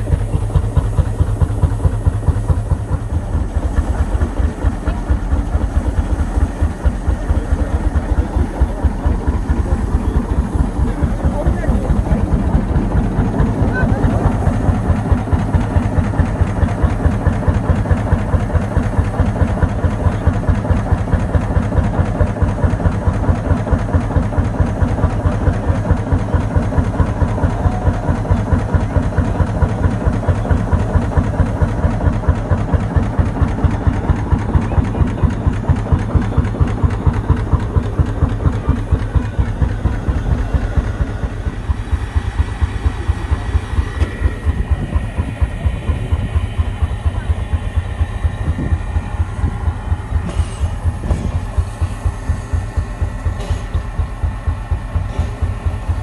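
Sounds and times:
tractor engine idling: 0.0 - 56.0.

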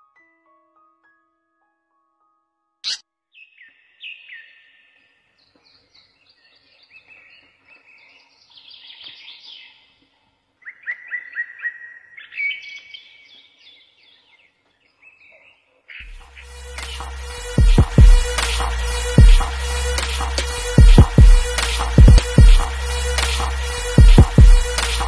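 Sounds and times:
songbirds chirping and singing: 2.9 - 17.6.

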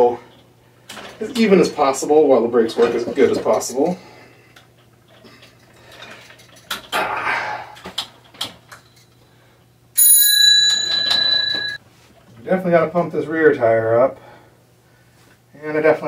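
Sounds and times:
bicycle bell ringing: 10.0 - 11.8.

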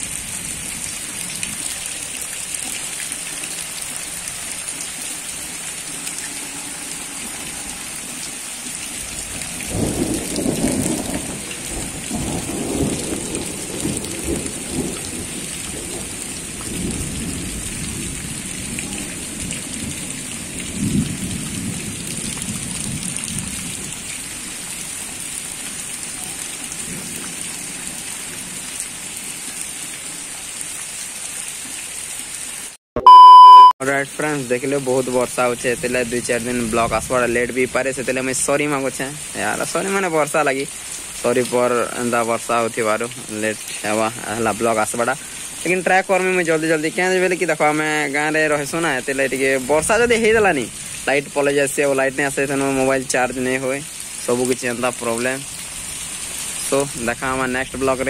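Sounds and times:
heavy rain pouring: 0.0 - 32.8, 33.9 - 58.0
rolling thunder rumble: 9.1 - 24.1.

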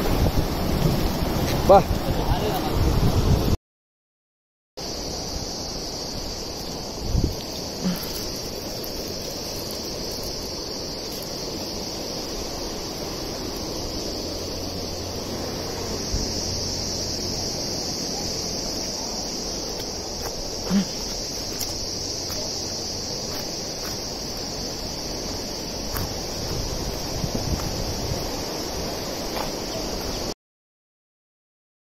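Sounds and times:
insects chirring: 0.0 - 3.5, 4.8 - 30.4.

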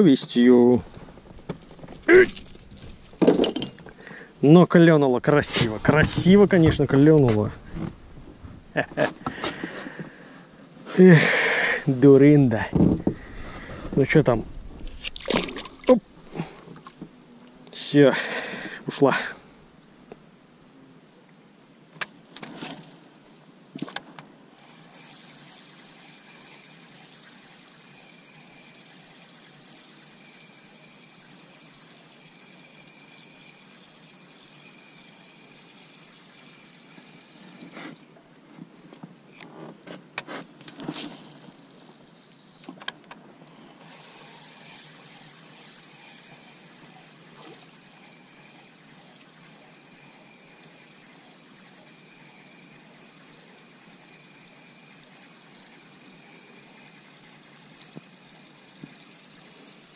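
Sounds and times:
fishing reel whirring: 0.7 - 4.0, 22.4 - 23.8, 24.6 - 38.1, 43.8 - 59.9.

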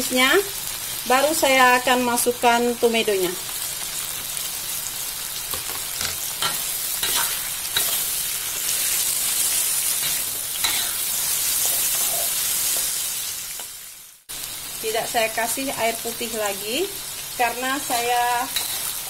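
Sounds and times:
vegetables sizzling in oil: 0.0 - 19.0
metal spatula scraping a wok: 6.0 - 13.8, 18.0 - 19.0.

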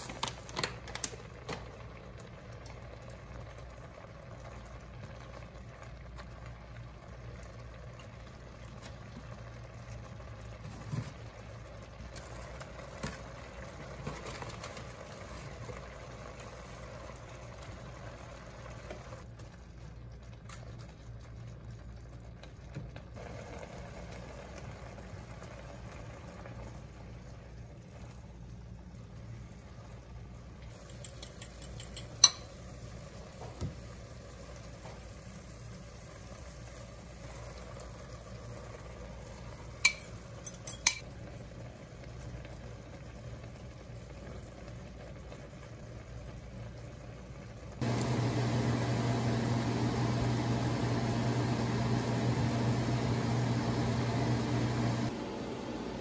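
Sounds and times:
steady mechanical hum: 0.0 - 56.0
metal tongs clicking on pan: 30.8 - 32.6, 39.8 - 41.1
beef and onions sizzling: 47.8 - 55.1.

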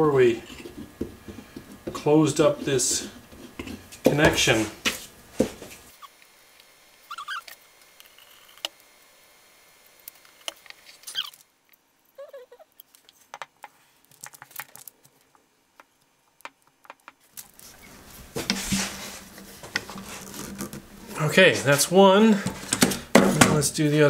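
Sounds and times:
wooden parts clicking and tapping: 12.8 - 17.2
rustling clatter: 17.4 - 21.2.

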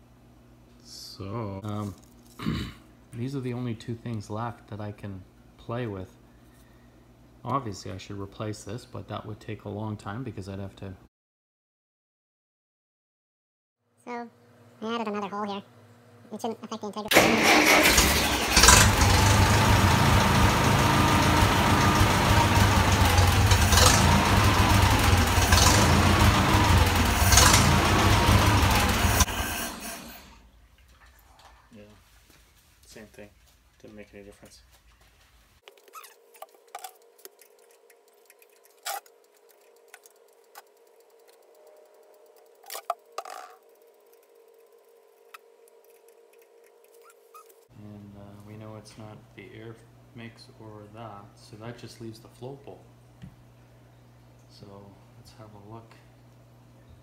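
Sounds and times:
faint steady hum: 0.0 - 11.1, 29.4 - 57.0
tractor engine running: 17.1 - 30.3.

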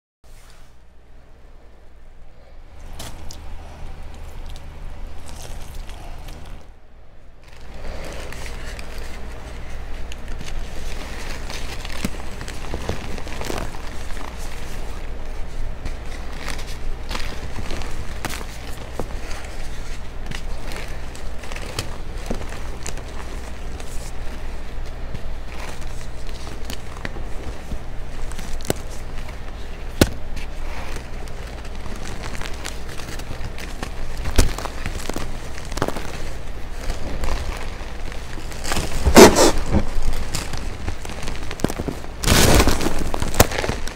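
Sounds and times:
steady low hum: 0.3 - 43.9
chalk crunching by hand: 7.6 - 43.9
chalk crunching in hand: 28.2 - 43.9.

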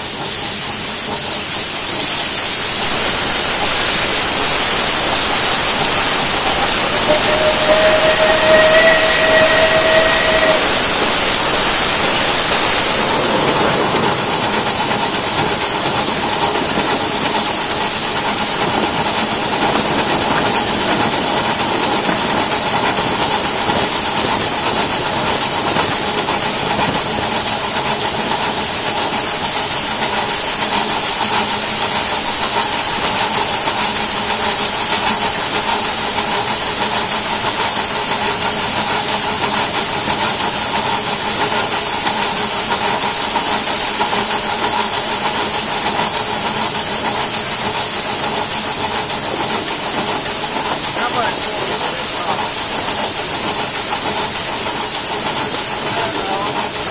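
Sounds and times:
loud hiss of steam: 0.0 - 56.9.

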